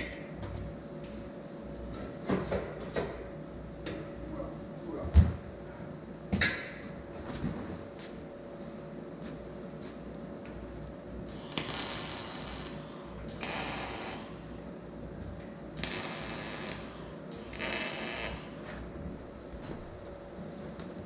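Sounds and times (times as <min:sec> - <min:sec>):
background hum: 0:00.0 - 0:21.0
arc welding bursts: 0:11.3 - 0:14.4, 0:15.8 - 0:18.6.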